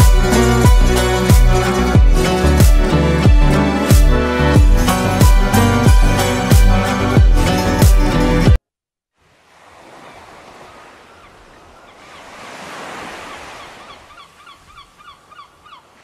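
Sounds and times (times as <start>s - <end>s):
background music: 0.0s - 8.6s
ocean surf waves: 9.2s - 16.0s
quick repeated bird calls: 10.0s - 16.0s.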